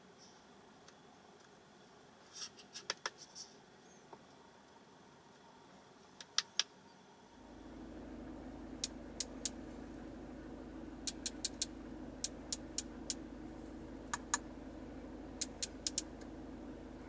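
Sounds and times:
car engine starting and humming: 0:07.4 - 0:17.0
car control buttons clicking: 0:08.8 - 0:09.6, 0:11.0 - 0:13.2, 0:14.1 - 0:14.5, 0:15.3 - 0:16.3.

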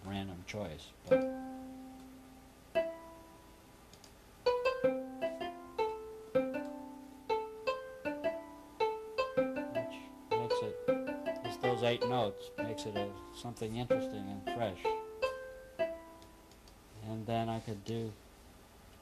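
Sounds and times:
synthesized plucked notes: 0:01.1 - 0:03.5, 0:04.4 - 0:16.5.

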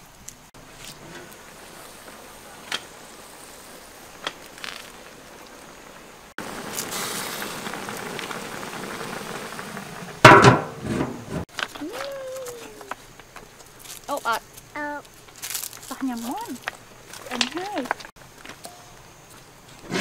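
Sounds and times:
pan of food simmering hiss: 0:00.0 - 0:20.0.

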